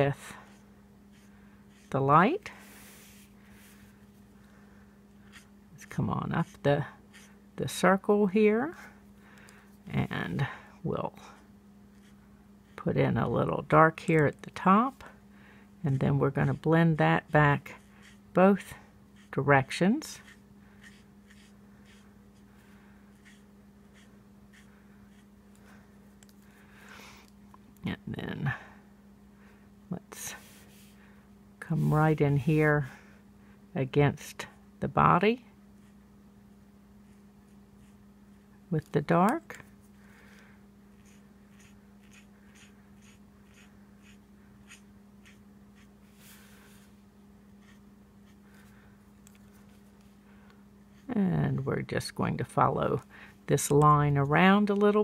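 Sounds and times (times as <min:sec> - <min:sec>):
low steady hum: 0:00.0 - 0:55.0
marker scratching on cardstock: 0:06.4 - 0:07.3, 0:20.2 - 0:22.0, 0:23.2 - 0:25.3, 0:41.0 - 0:46.0, 0:47.6 - 0:48.4.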